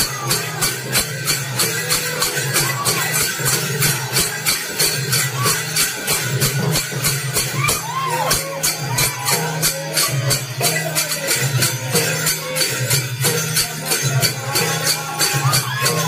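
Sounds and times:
person singing: 13.7s - 16.0s.

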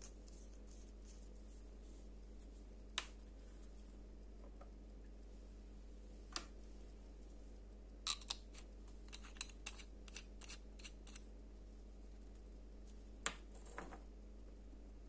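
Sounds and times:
pen cap clicks and scrapes: 8.1s - 11.2s.

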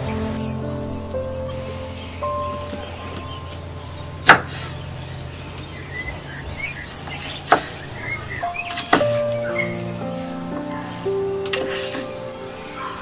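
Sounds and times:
soft background music: 0.0s - 6.0s, 8.0s - 13.0s
bird chirps: 0.0s - 10.2s.

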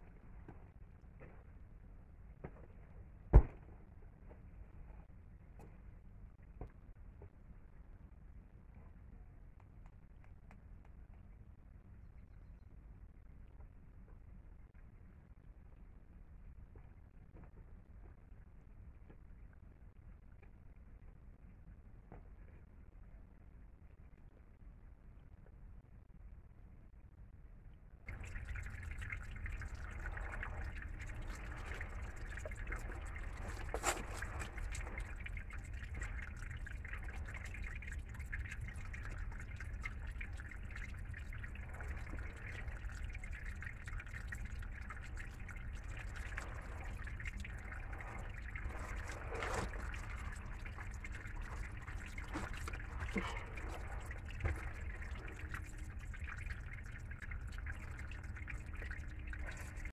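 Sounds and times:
stream trickling over rocks: 28.1s - 59.9s.

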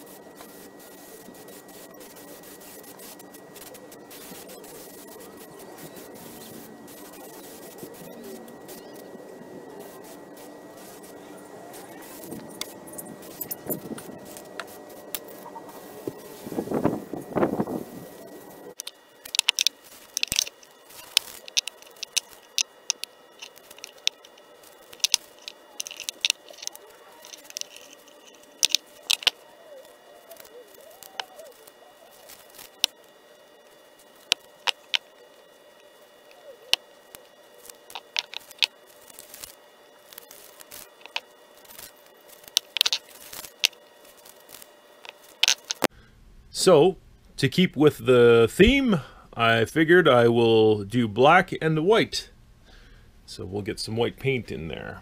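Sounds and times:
faint steady hum: 0.0s - 55.0s
tape being peeled off: 18.7s - 33.2s.

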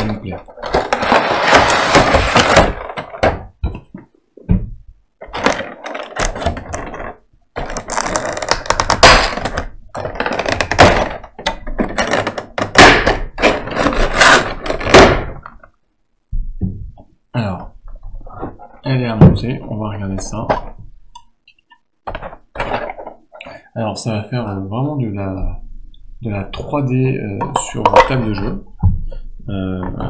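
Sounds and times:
cardboard box rustling: 0.5s - 3.1s
knocks and thunks: 1.5s - 5.0s, 16.3s - 17.1s.

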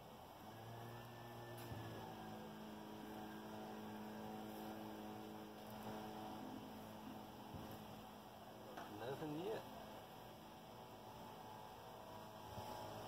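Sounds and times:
low hum: 0.0s - 9.0s.

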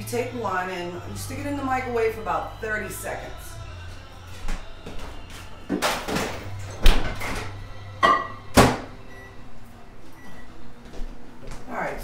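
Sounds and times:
microwave door thudding: 5.8s - 9.0s.

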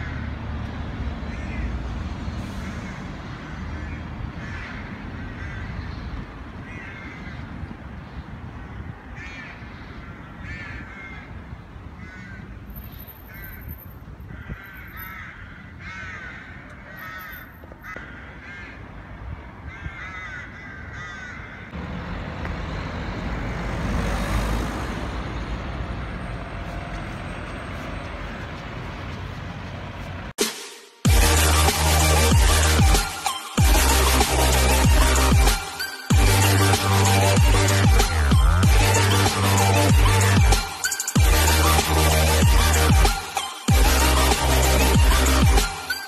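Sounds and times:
crows cawing: 2.6s - 7.7s, 8.6s - 19.0s, 19.6s - 21.8s.

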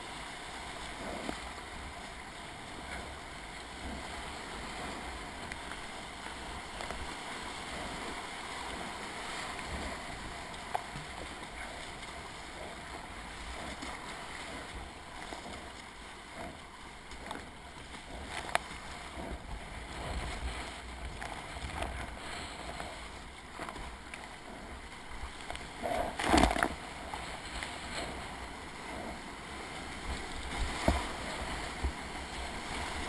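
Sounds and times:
paddle strokes splashing: 0.0s - 33.0s
whitewater rapids rushing: 25.7s - 33.0s.

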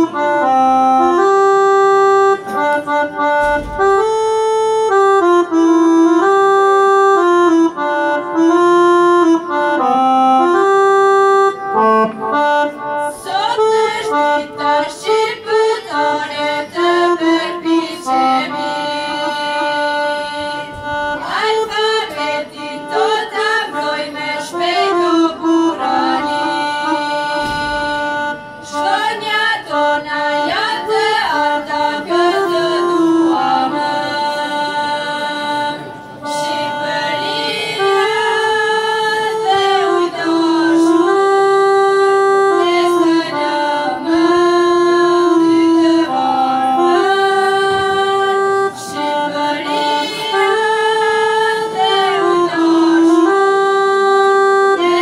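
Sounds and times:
instrumental backing music: 0.0s - 55.0s
group of young singers singing: 13.1s - 41.3s, 42.4s - 53.8s, 54.8s - 55.0s.

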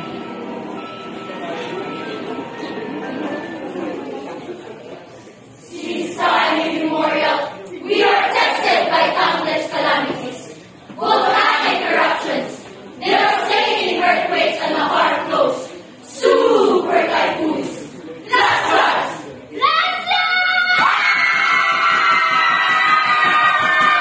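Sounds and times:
crowd chanting in unison: 5.7s - 19.3s.

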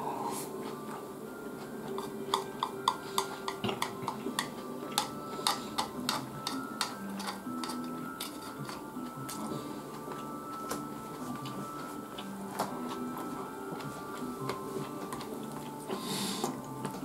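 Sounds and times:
chopsticks clicking on a bowl: 1.9s - 9.4s.

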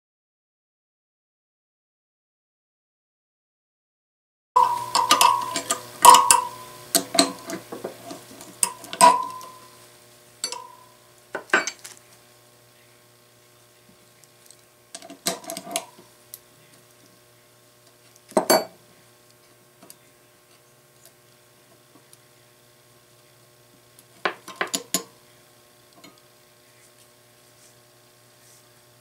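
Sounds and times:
metal spokes and tools clinking: 4.6s - 7.7s, 8.6s - 9.8s, 10.4s - 10.8s
faint steady hum: 4.6s - 29.0s
metal knocks: 8.6s - 9.6s.

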